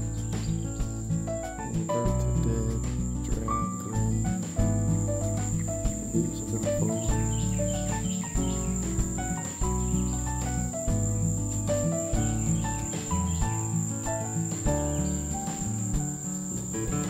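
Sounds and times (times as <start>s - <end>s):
high-pitched insect drone: 0.0s - 10.4s
instrumental background music: 0.0s - 17.0s.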